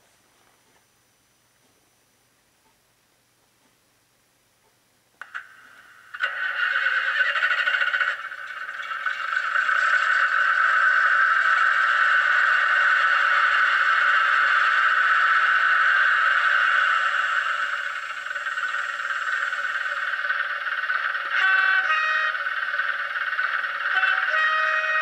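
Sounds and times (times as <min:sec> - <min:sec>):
diesel engine through small speaker: 0:06.2 - 0:25.0.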